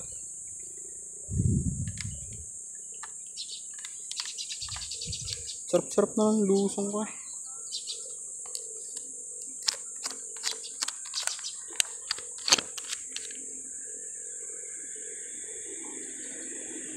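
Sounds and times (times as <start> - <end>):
insects droning: 0.0 - 16.9
camera handling clicks and taps: 1.9 - 2.3, 3.0 - 5.5, 8.4 - 13.4.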